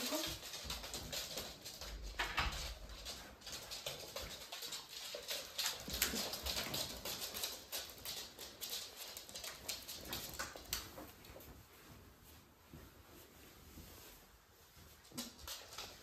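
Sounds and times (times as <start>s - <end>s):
dog claws clicking on floor: 0.0s - 11.5s, 15.0s - 16.0s.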